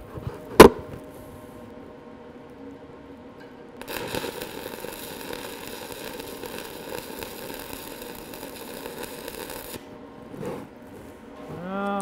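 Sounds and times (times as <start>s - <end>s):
welding arc crackling sizzle: 3.8s - 12.0s.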